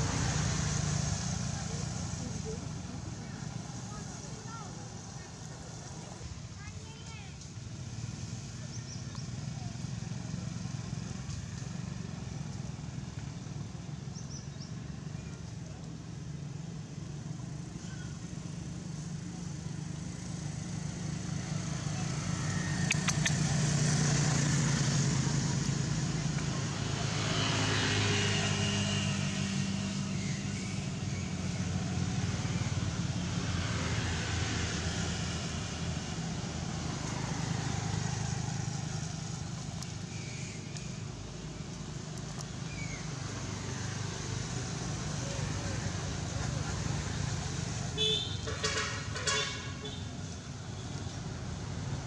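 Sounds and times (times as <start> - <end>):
vehicle engine humming: 7.2 - 52.0
sharp clicks: 22.8 - 23.5.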